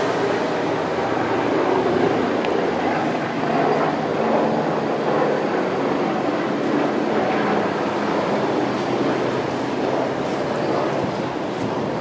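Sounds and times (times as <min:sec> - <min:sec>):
helicopter flying overhead: 0:00.0 - 0:12.0.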